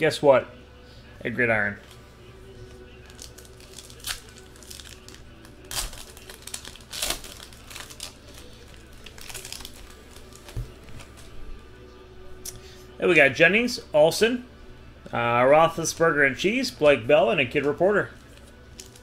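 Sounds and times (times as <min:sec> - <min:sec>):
foil wrapper tearing and crinkling: 0:03.0 - 0:11.1, 0:18.2 - 0:19.0.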